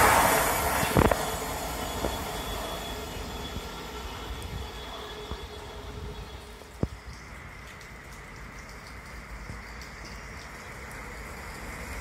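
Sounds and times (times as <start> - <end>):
train running on track: 0.0 - 12.0
thin wheel squeal: 0.9 - 5.9.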